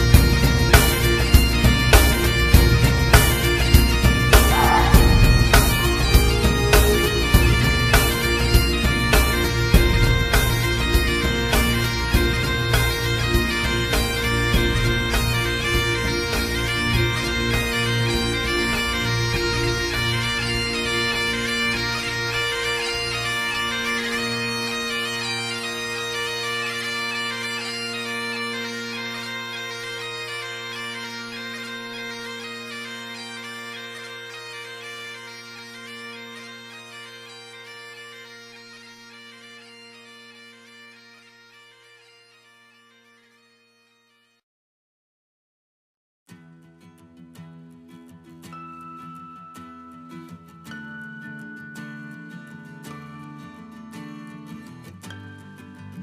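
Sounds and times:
bagpipe music: 0.0s - 44.4s.

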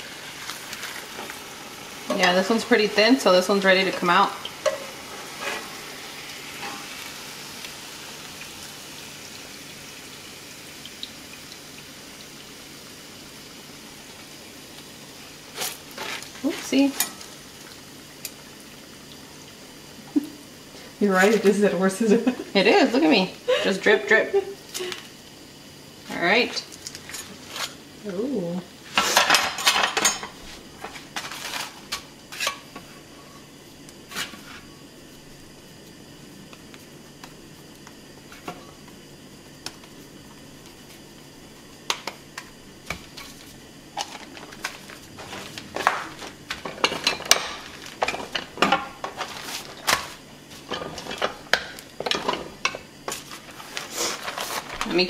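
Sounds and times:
metal utensils clattering: 3.7s - 5.8s, 29.0s - 30.4s, 44.0s - 50.1s, 50.7s - 52.8s.

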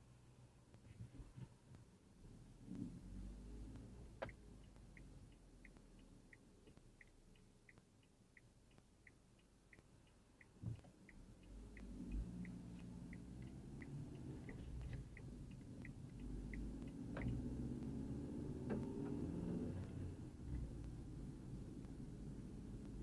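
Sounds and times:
car engine accelerating: 2.2s - 6.8s, 11.1s - 23.0s
car turn signal clicking: 2.7s - 23.0s.

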